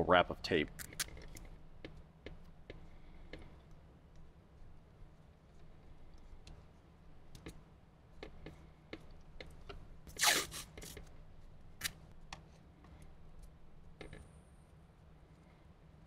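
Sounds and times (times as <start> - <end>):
tape ripping off roll: 10.1 - 11.0.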